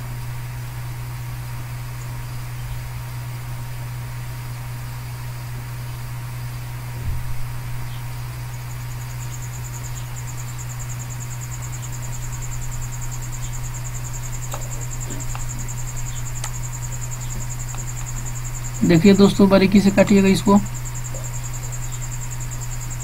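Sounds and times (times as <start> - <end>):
low background hum: 0.0 - 23.0
high fast pulsing trill: 8.7 - 23.0.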